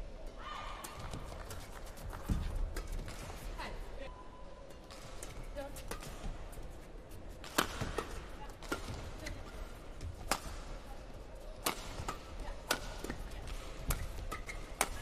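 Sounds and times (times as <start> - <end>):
rackets hitting shuttlecock: 7.4 - 9.5, 10.1 - 10.7, 11.6 - 15.0.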